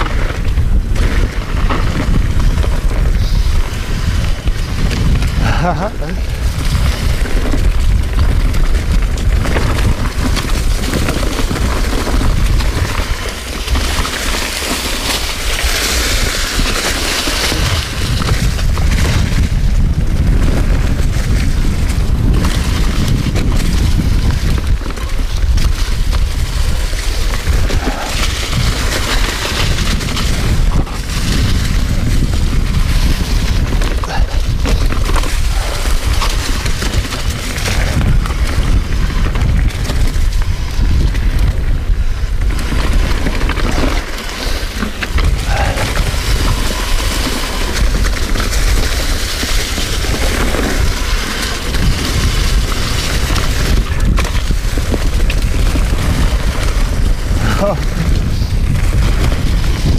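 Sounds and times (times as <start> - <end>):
wind rumble on microphone: 0.0 - 59.9.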